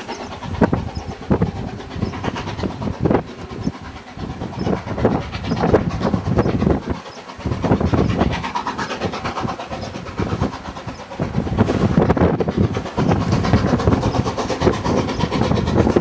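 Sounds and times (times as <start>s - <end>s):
steam locomotive exhaust: 0.0s - 16.0s
wind buffeting microphone: 0.0s - 16.0s.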